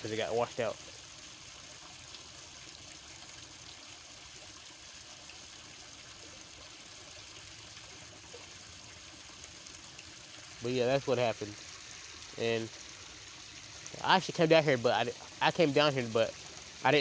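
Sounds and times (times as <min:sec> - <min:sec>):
creek water trickling: 0:00.0 - 0:17.0.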